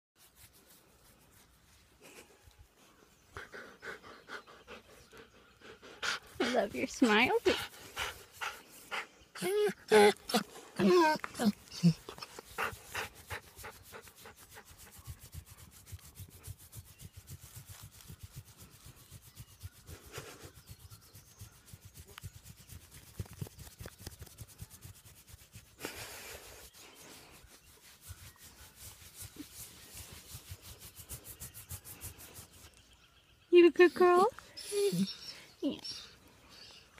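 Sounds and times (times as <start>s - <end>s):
hand scratching fur: 0.2s - 3.0s, 6.2s - 32.8s.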